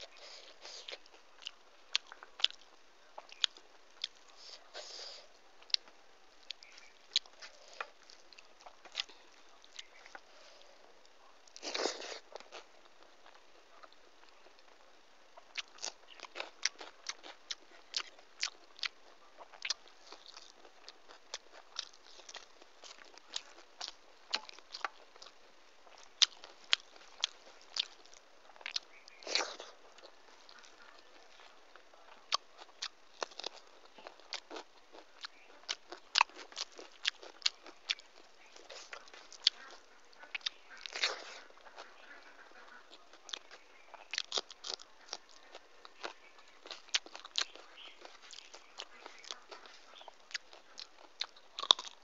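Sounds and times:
chewing with wet smacks: 0.0 - 4.9, 5.6 - 52.0.

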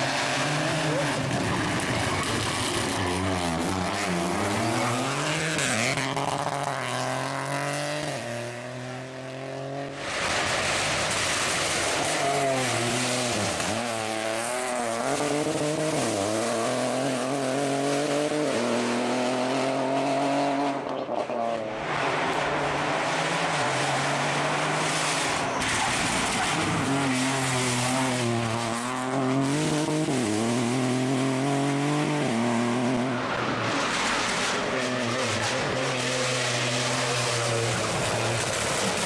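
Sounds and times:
rally car engine revving past: 0.0 - 39.0.

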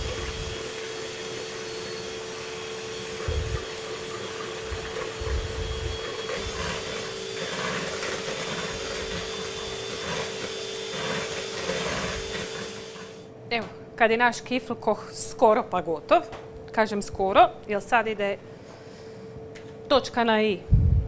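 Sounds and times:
electric hand mixer humming: 0.0 - 13.3.

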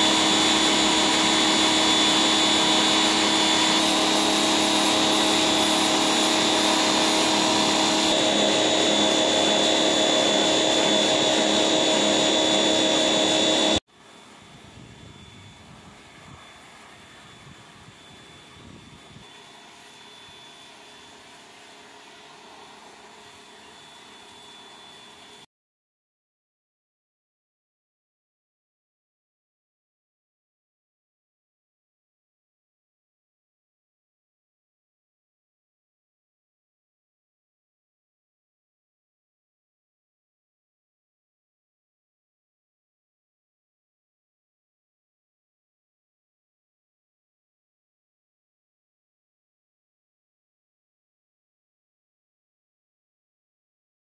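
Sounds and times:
pressure washer running: 0.0 - 14.6, 15.8 - 25.4.

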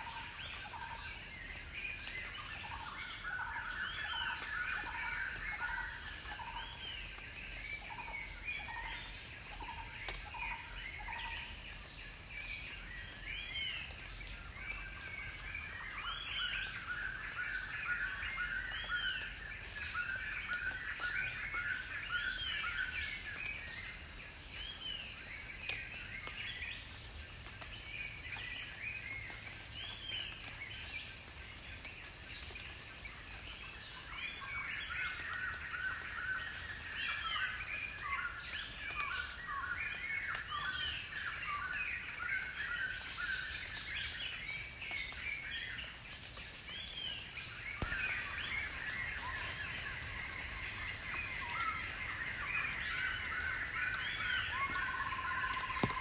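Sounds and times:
birds chirping: 46.7 - 56.0.

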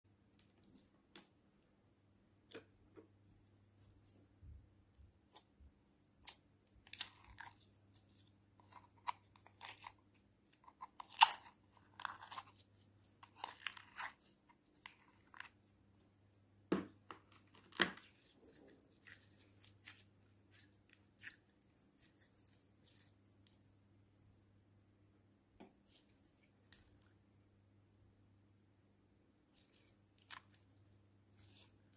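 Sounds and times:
sticky slime crackles: 6.2 - 15.7, 17.8 - 23.6, 29.5 - 31.9.

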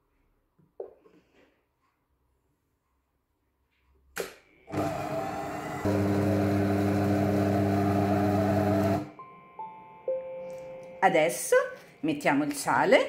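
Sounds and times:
kitchen robot motor humming: 4.7 - 9.1.

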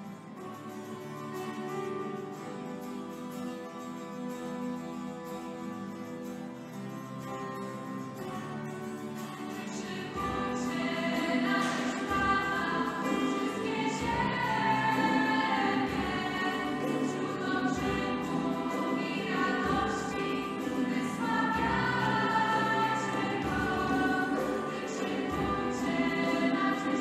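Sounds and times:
choir singing a worship song: 9.3 - 27.0.

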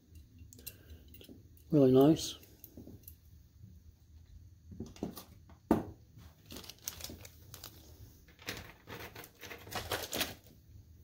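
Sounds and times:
plastic bag crinkling: 6.2 - 10.6.

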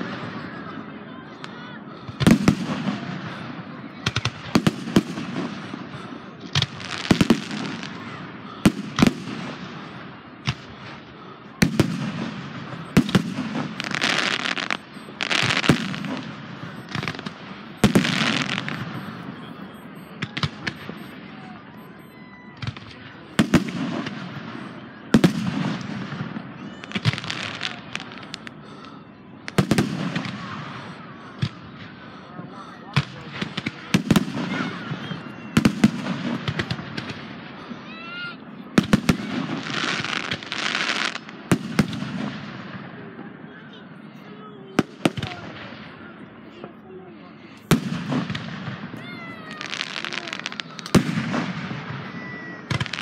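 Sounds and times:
firework bangs: 0.0 - 53.0
firework crackling hiss: 11.6 - 18.8, 49.4 - 52.0.

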